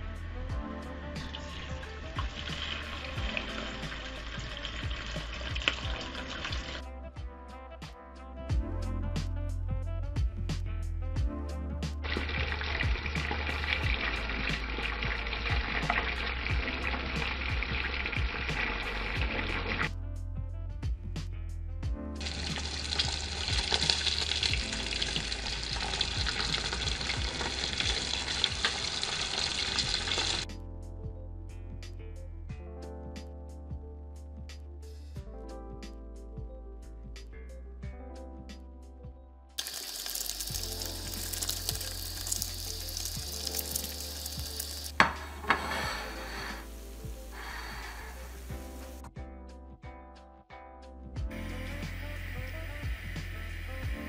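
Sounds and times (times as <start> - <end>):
background music: 0.0 - 54.0
fish sizzling in hot oil: 1.2 - 6.8, 12.0 - 19.9, 22.2 - 30.4, 39.6 - 49.1.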